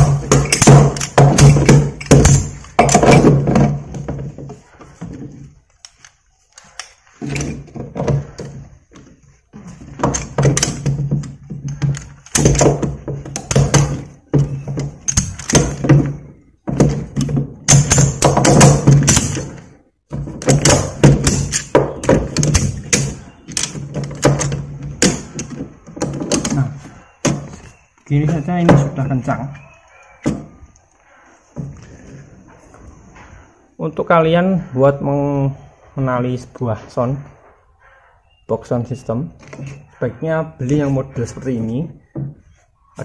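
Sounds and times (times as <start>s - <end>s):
ratchet strap clicking: 0.0s - 3.0s.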